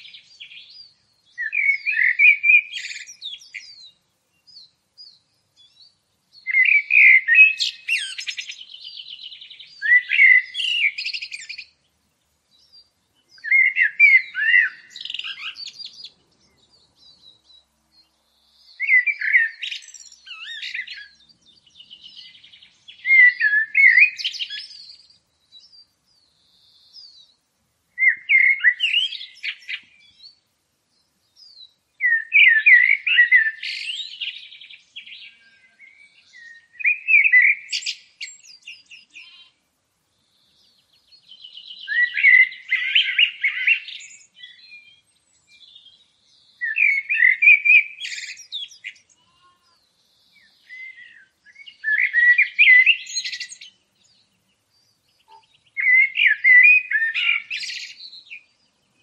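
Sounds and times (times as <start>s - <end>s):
songbird chirping and trilling: 0.0s - 59.0s.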